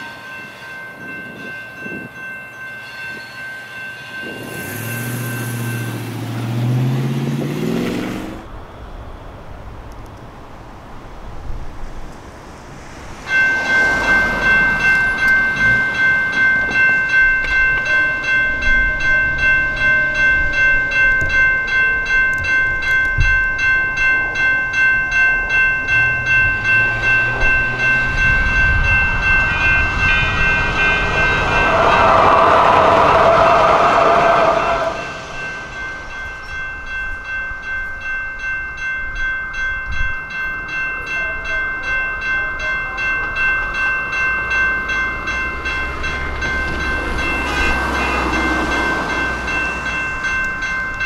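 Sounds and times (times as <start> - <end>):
railroad crossing bell ringing: 0.0 - 8.6, 11.4 - 51.0.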